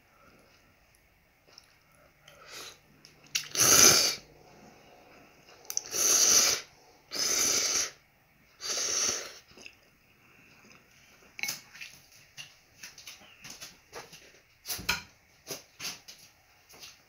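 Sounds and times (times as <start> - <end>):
loud slurping of noodles: 3.4 - 4.8, 5.6 - 8.0, 8.6 - 9.5.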